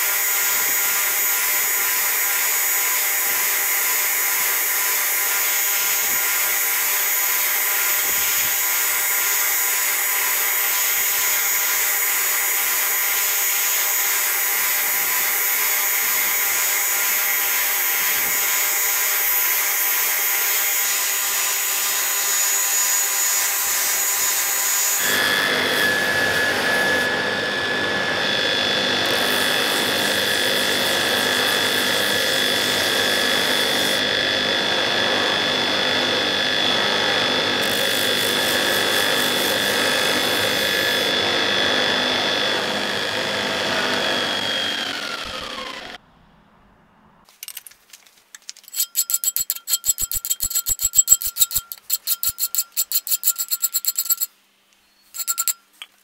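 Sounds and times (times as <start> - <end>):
belt grinder whining: 0.0 - 46.0, 48.6 - 54.3, 55.2 - 55.6
motor winding down: 24.5 - 46.0
metal scraping strokes: 48.6 - 54.3, 55.2 - 55.8.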